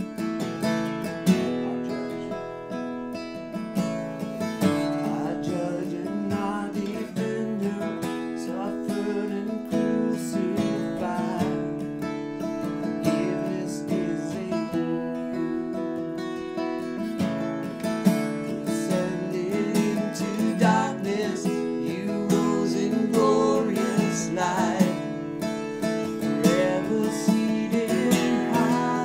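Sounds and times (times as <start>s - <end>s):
acoustic guitar strumming: 0.0s - 29.0s
person singing worship song: 18.8s - 25.1s, 26.4s - 29.0s.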